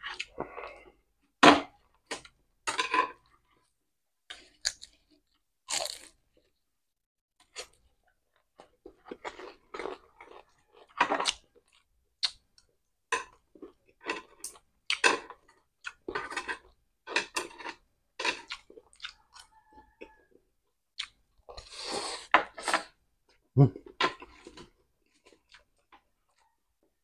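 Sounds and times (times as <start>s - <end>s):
crunchy chewing: 4.3s - 6.5s, 13.6s - 20.2s.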